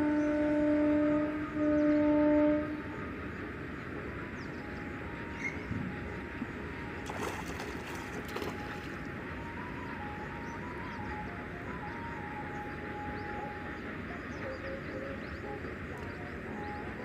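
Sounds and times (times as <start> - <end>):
outdoor background noise: 0.0 - 17.0
cast net splashing on water: 7.0 - 9.0.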